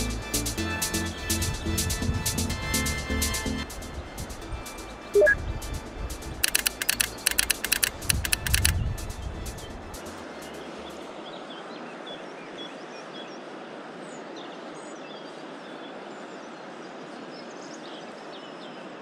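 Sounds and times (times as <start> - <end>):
small birds chirping: 6.4 - 9.7.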